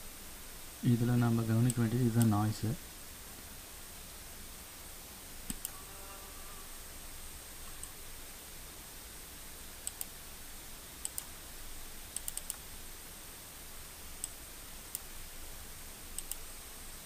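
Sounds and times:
faint high whine: 0:00.0 - 0:17.0
microphone hiss: 0:00.0 - 0:17.0
computer mouse clicking: 0:05.5 - 0:05.8, 0:09.8 - 0:10.2, 0:11.0 - 0:11.3, 0:12.1 - 0:12.7, 0:14.2 - 0:15.1, 0:16.1 - 0:16.5.

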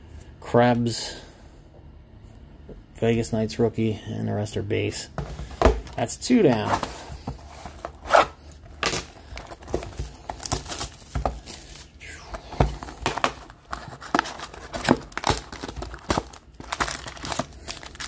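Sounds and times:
wrapping crinkling and tearing: 0:06.6 - 0:12.0, 0:12.8 - 0:18.0.

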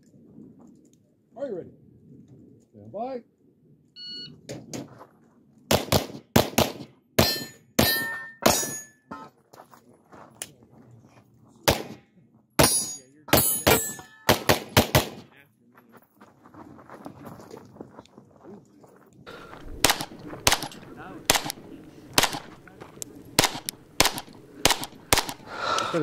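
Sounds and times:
pistol shots: 0:05.7 - 0:08.9, 0:11.6 - 0:12.0, 0:12.6 - 0:15.3, 0:19.8 - 0:22.6, 0:23.4 - 0:25.5
steel targets ringing: 0:07.2 - 0:09.3, 0:12.6 - 0:14.4.

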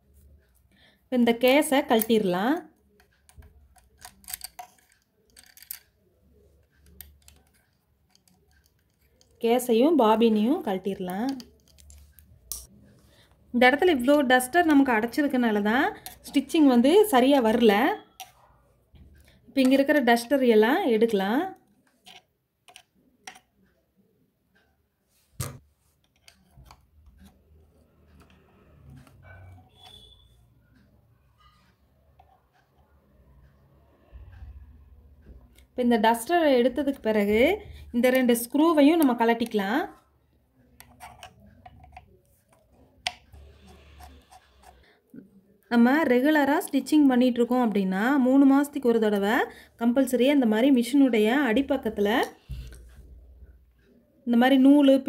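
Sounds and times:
screwdriver scraping on metal: 0:03.0 - 0:05.8, 0:06.6 - 0:09.4, 0:40.8 - 0:44.8.

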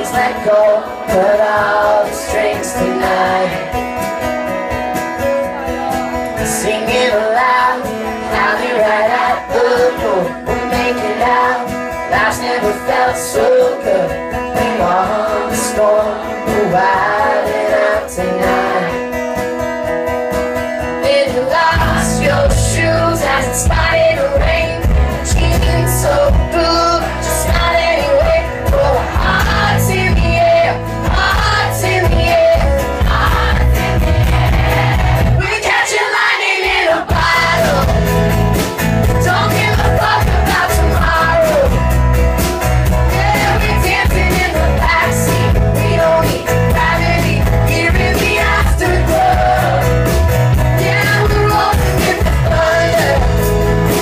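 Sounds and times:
man singing: 0:00.0 - 0:03.9, 0:06.4 - 0:19.1, 0:21.1 - 0:30.9, 0:37.1 - 0:38.3, 0:39.1 - 0:41.9, 0:43.1 - 0:50.2, 0:50.8 - 0:54.0
pop-rock band playing: 0:00.0 - 0:54.0.

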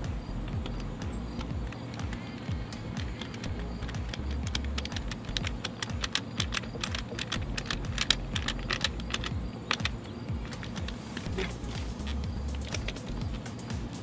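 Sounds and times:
plastic clicking and rattling: 0:00.5 - 0:11.3.

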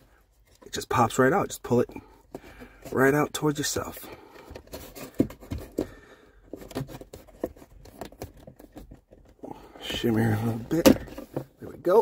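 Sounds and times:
plastic clicks knocks and scrapes: 0:04.3 - 0:09.4.

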